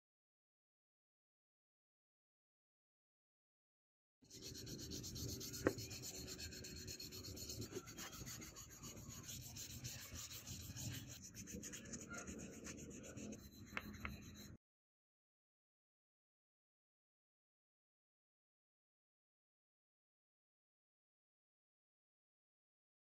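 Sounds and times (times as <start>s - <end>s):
sandpaper scratching plastic: 4.3s - 14.5s.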